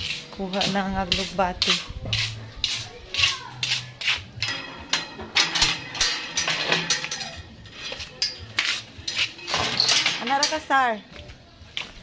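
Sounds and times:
footsteps walking: 11.0s - 12.0s.

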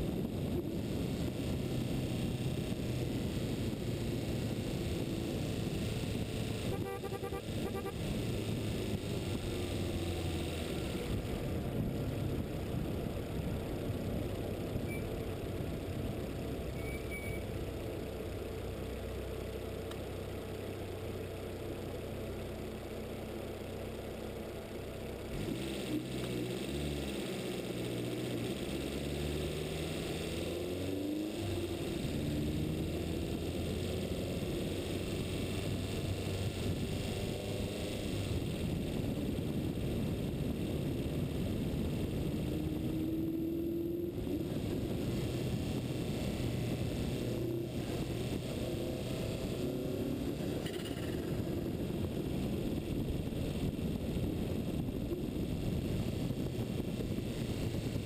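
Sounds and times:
motor vehicle engine drone: 0.0s - 58.0s
wind rushing over microphone: 35.2s - 50.6s, 51.3s - 58.0s.

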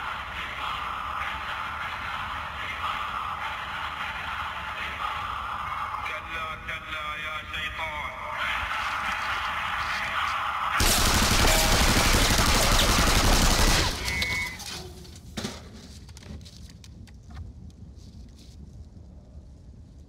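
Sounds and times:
faint scattered gunshots: 10.8s - 14.6s
rifle fire volley: 10.8s - 14.6s.

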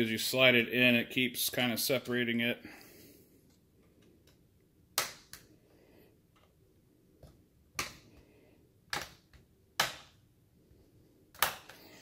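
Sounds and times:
plastic clips snapping loose: 11.3s - 11.8s.

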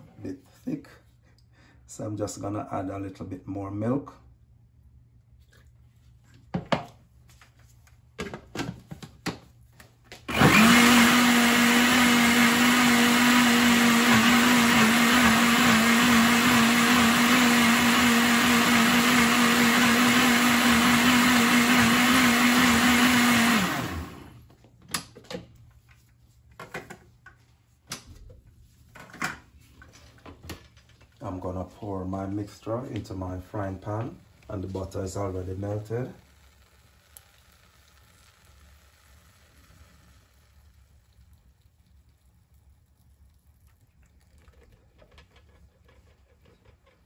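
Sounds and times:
blender motor running: 10.2s - 24.5s, 35.6s - 40.7s.

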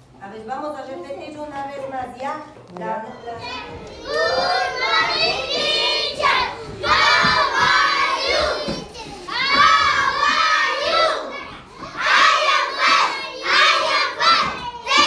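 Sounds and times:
young children shouting and chanting: 3.1s - 15.0s.

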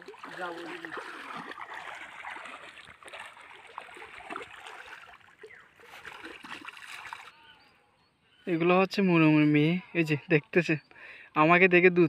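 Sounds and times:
water sloshing around wading feet: 0.0s - 7.5s.

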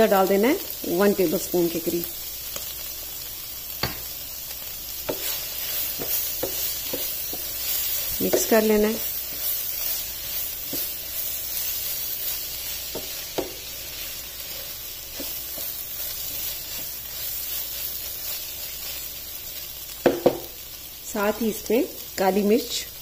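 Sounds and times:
food sizzling in a frying pan: 0.0s - 23.0s
spatula tapping pan: 3.8s - 4.1s, 5.0s - 11.1s, 12.7s - 13.7s, 14.4s - 16.9s, 20.0s - 20.5s
wooden spatula stirring: 5.0s - 19.1s.

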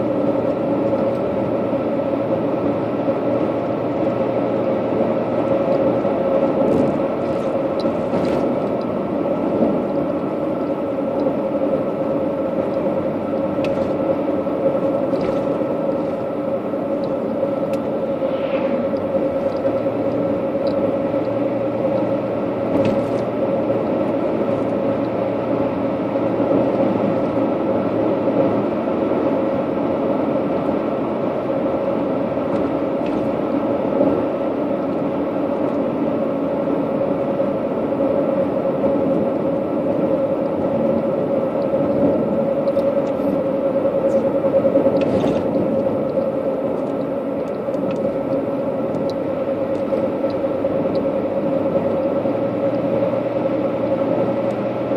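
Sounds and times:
vehicle road noise in cabin: 0.0s - 54.9s.

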